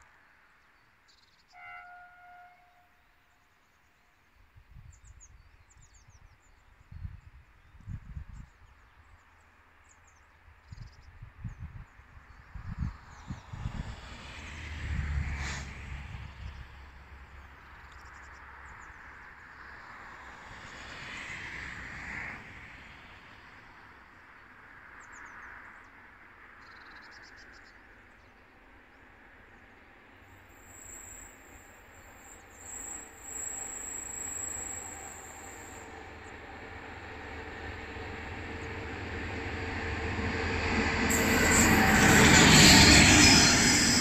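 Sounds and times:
locomotive horn: 1.5s - 3.0s, 41.0s - 44.0s
distant diesel locomotive rumble: 28.6s - 44.0s.

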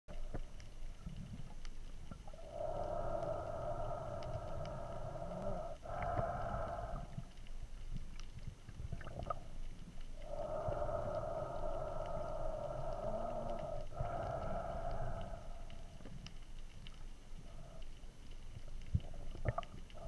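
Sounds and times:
faint clicks: 0.1s - 20.0s
underwater rumble of moving water: 0.1s - 20.0s.

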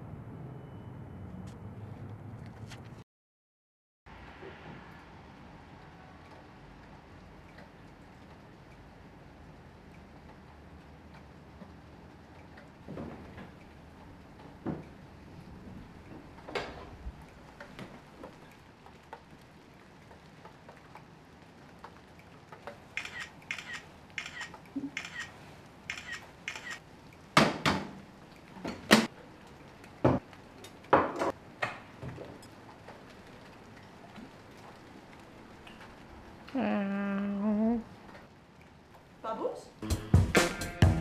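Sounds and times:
phone camera shutter clicks: 23.0s - 25.3s, 25.9s - 26.8s.

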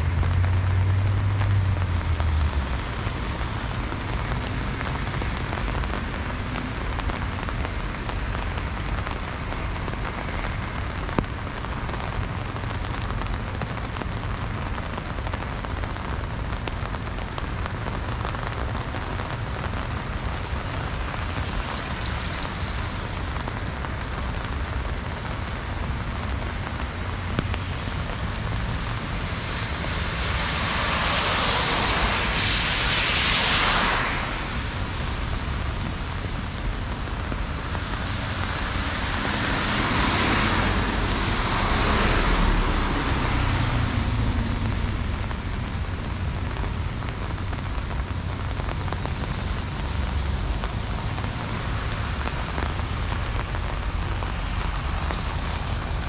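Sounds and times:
heavy rain falling: 0.0s - 56.0s
rushing hiss: 28.6s - 35.7s.

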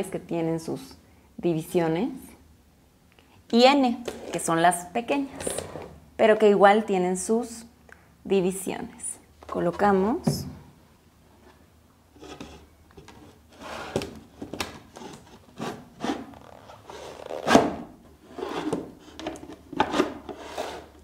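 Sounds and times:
wood panels rubbing and scraping: 12.2s - 21.0s.

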